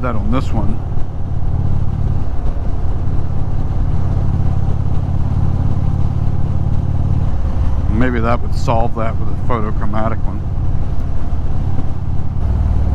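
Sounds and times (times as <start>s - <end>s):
motorcycle engine running: 0.0s - 12.9s
wind rush: 0.0s - 12.9s.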